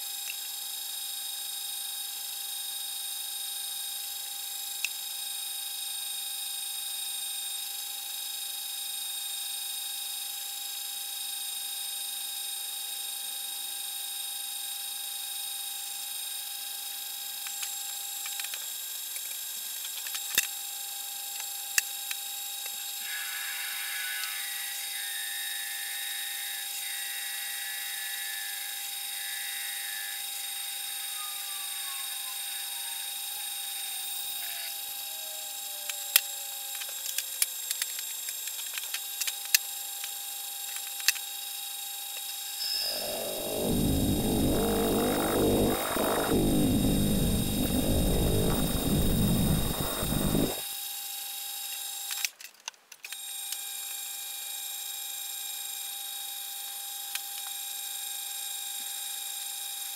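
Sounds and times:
drill cutting into metal: 0:22.8 - 0:36.4, 0:42.6 - 0:50.6
metal lathe whining: 0:23.0 - 0:33.2, 0:42.6 - 0:50.6
scratchy cutting noise: 0:42.8 - 0:50.6
tone falling in pitch: 0:42.8 - 0:50.6.

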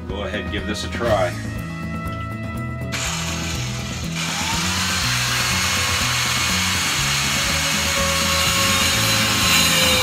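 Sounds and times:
circular saw whining: 0:03.0 - 0:10.0.

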